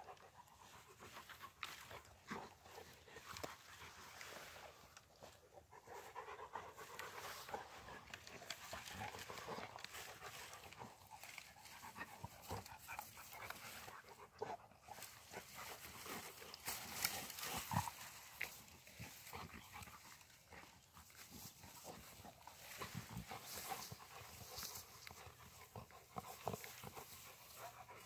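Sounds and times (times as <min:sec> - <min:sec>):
dogs chewing a branch: 0:00.0 - 0:28.0
grass rustling: 0:00.0 - 0:28.0
twigs crackling: 0:06.9 - 0:14.1, 0:15.0 - 0:27.6.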